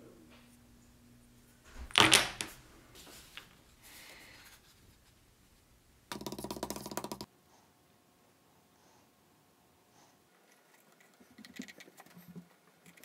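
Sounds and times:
wooden block clattering on mat: 0:01.8 - 0:02.6.

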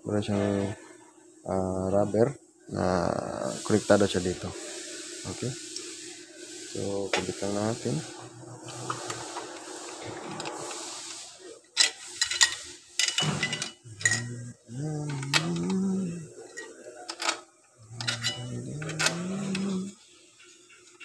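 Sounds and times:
metal parts clinking: 0:11.8 - 0:14.4, 0:15.0 - 0:19.9
person humming rising notes: 0:13.9 - 0:16.3, 0:17.8 - 0:20.0.

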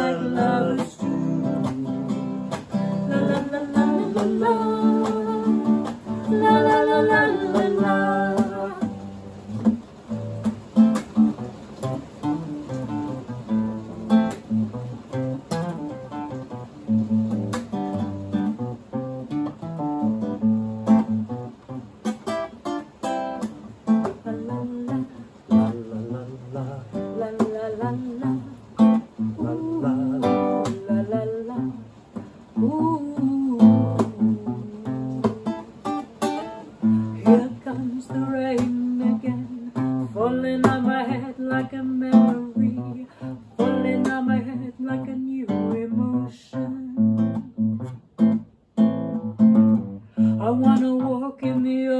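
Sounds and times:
woman singing: 0:00.0 - 0:10.3, 0:23.4 - 0:47.6, 0:50.2 - 0:51.9
classical guitar strumming: 0:00.0 - 0:51.9.

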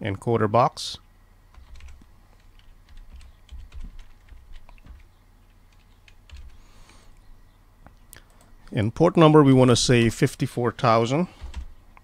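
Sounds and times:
faint keyboard typing: 0:01.5 - 0:07.2, 0:07.8 - 0:08.8, 0:11.3 - 0:12.0.

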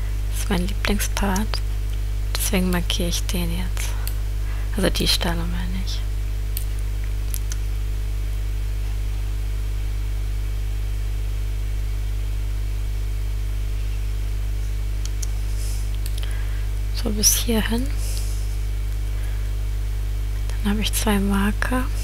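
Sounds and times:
electrical hum with hiss: 0:00.0 - 0:22.0
faint clicks: 0:15.0 - 0:16.3.

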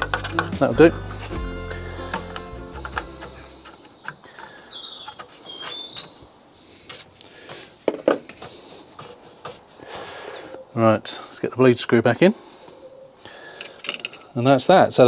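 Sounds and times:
bird chirping: 0:02.7 - 0:06.4.

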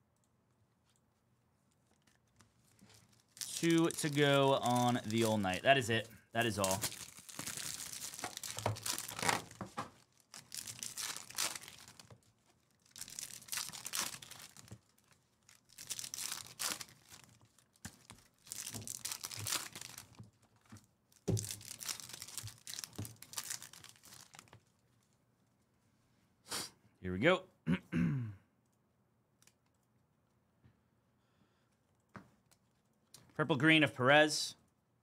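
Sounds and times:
foil packs tearing and crinkling: 0:02.8 - 0:05.8, 0:06.4 - 0:20.3, 0:21.2 - 0:24.5.

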